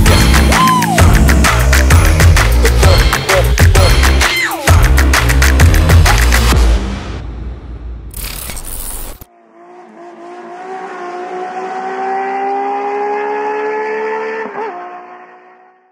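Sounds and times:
electronic music: 0.0s - 7.2s
race car tone rising in pitch: 9.3s - 15.9s.

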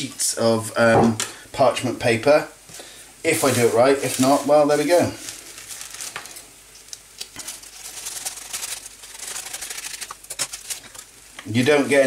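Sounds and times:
stiff paper crackling and rustling: 3.3s - 12.0s
scissors snipping paper: 7.9s - 11.0s.

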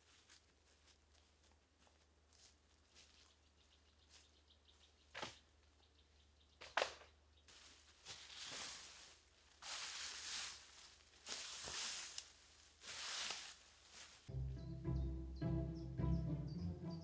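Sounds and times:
rake scraping dry leaves: 7.5s - 14.3s.

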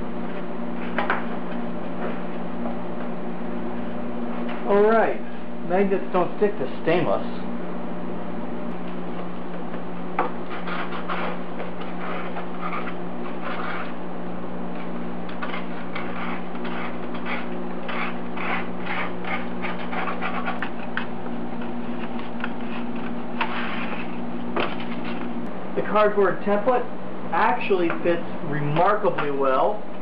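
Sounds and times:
steady low hum: 0.0s - 30.0s
card rustling and scraping: 10.2s - 14.0s, 14.8s - 25.3s.

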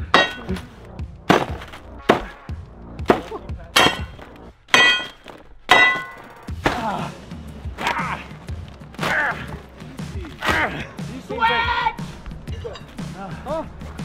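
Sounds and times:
axe chopping into tape: 1.3s - 2.4s.

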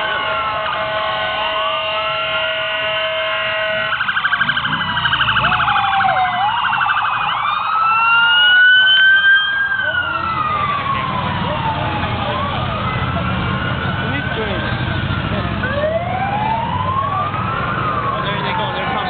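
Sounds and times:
steady held siren tone: 0.0s - 13.0s
fast pulsing siren yelp: 0.0s - 14.8s, 15.6s - 19.0s
police sirens wailing: 0.0s - 19.0s.

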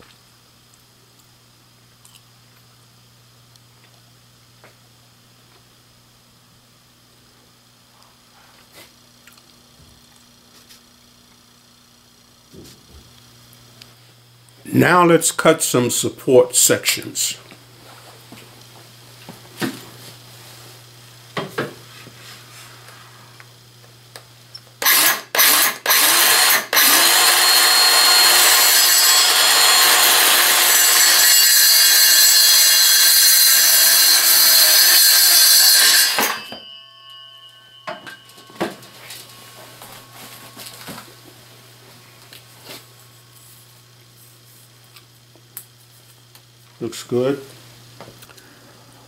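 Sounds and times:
circular saw cutting wood: 24.8s - 41.1s.

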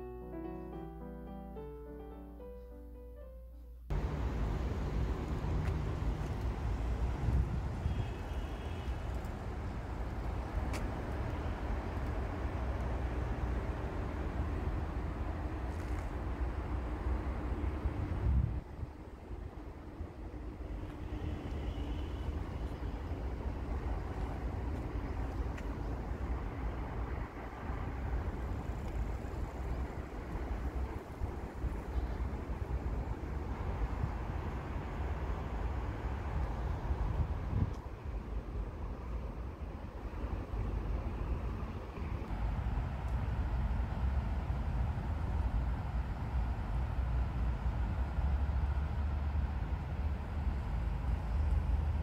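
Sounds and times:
distant traffic rumble: 3.9s - 52.0s
wind buffeting microphone: 5.3s - 8.3s, 17.1s - 20.6s, 22.3s - 45.4s
wind on microphone: 7.0s - 8.2s, 17.8s - 19.0s, 36.8s - 38.0s.

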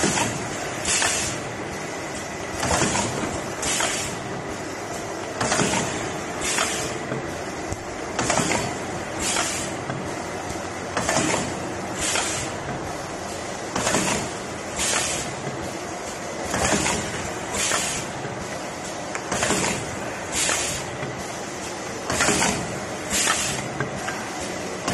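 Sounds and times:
machine press clacking with hiss: 0.0s - 7.4s, 8.1s - 24.9s
mechanical hum: 0.0s - 24.9s.

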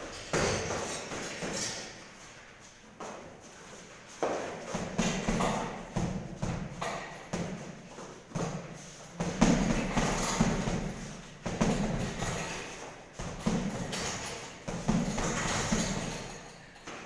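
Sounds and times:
gloves punching heavy bag: 0.1s - 1.6s, 4.3s - 16.4s.

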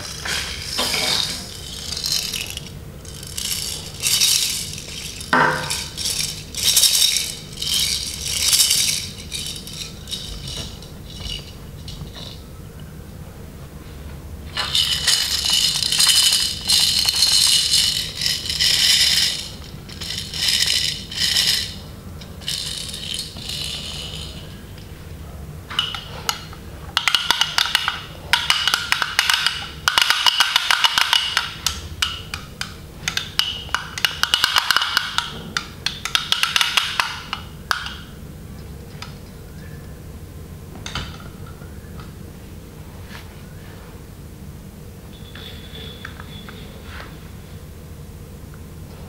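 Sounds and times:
clicky rattle shaking: 0.0s - 12.4s, 14.5s - 24.9s, 25.8s - 38.0s
plastic baby rattle shaking: 0.0s - 12.4s, 14.6s - 21.8s, 22.4s - 24.4s, 27.0s - 31.8s, 33.1s - 35.3s, 36.0s - 37.1s.

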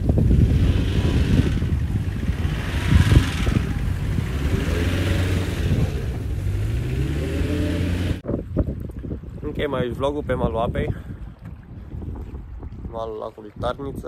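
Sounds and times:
engine revving: 0.1s - 8.2s.

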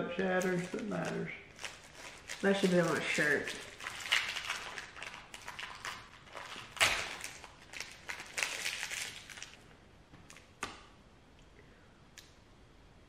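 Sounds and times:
wrapper crinkling and tearing: 0.3s - 9.7s
crack of candy bar bitten: 3.1s - 9.6s.

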